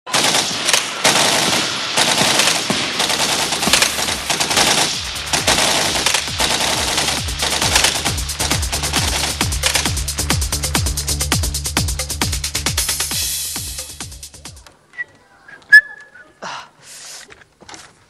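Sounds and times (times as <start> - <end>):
rapid machine-gun-like rattle: 0.1 - 10.4.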